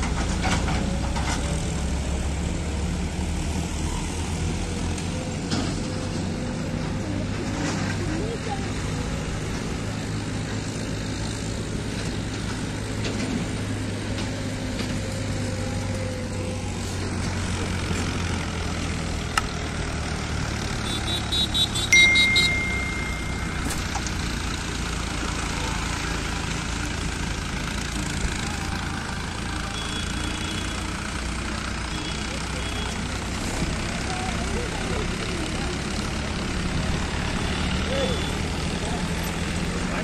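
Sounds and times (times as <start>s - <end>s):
road traffic: 0.0s - 40.0s
tractor engines running: 0.0s - 40.0s
high beeping: 21.6s - 24.4s
held high tone: 21.7s - 24.6s.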